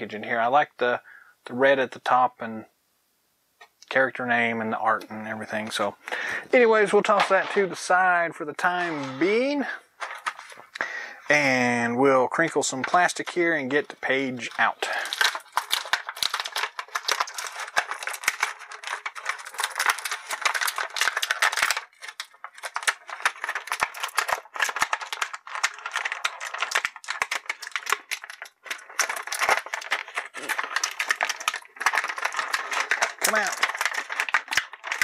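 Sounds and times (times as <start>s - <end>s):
plastic bag crinkling: 5.5s - 10.8s, 12.6s - 35.0s.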